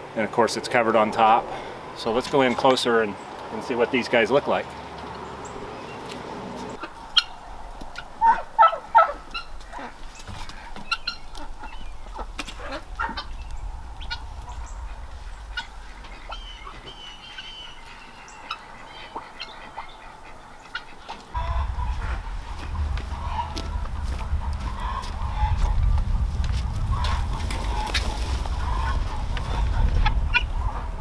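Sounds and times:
fowl clucking and chirping: 0:06.6 - 0:31.0
low steady rumble: 0:11.1 - 0:17.8, 0:21.4 - 0:31.0.

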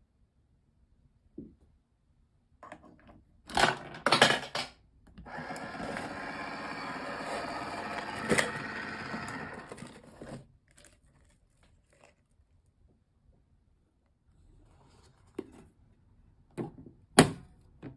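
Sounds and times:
vending machine motor running: 0:05.2 - 0:10.1.

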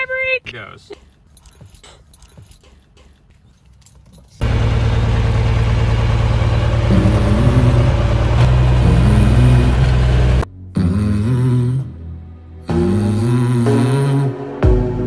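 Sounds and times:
aircraft propeller engine drone: 0:04.4 - 0:10.4.

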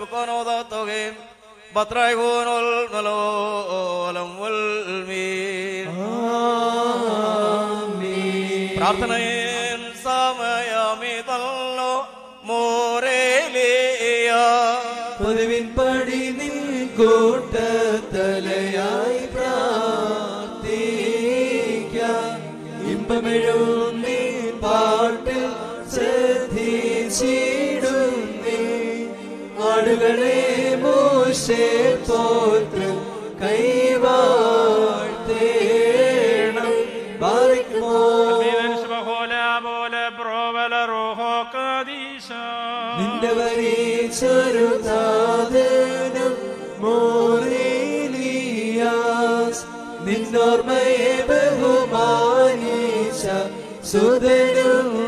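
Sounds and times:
voices singing liturgical chant: 0:05.9 - 0:10.3, 0:14.4 - 0:39.6, 0:42.9 - 0:55.0.

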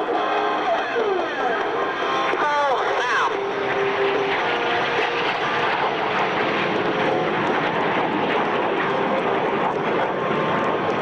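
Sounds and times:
jets flying past: 0:00.1 - 0:11.0.

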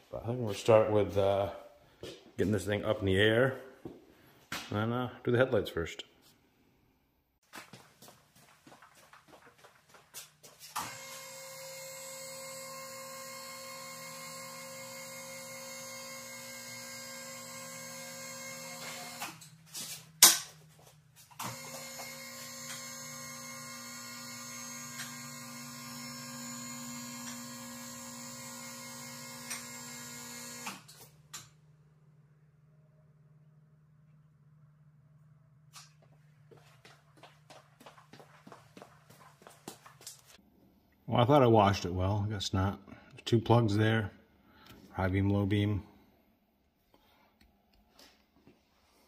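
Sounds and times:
electric lift motor humming: 0:10.8 - 0:19.5, 0:21.4 - 0:31.1.

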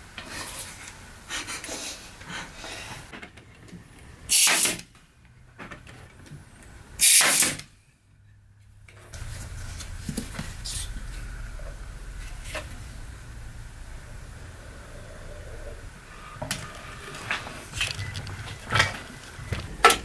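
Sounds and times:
nail gun firing: 0:04.3 - 0:04.9, 0:07.0 - 0:07.7
low hum: 0:09.1 - 0:20.0.

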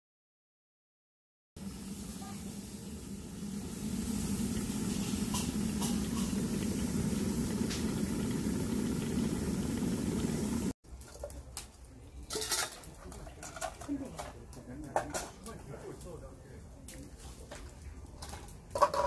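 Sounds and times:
electric kettle heating water: 0:01.6 - 0:10.8.

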